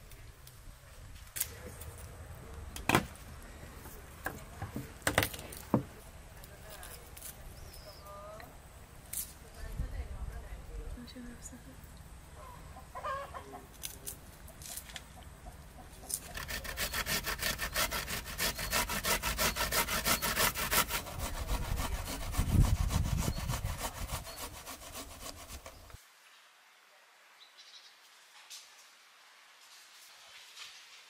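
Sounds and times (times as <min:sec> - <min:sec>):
food grated on metal grater: 0:16.3 - 0:25.7.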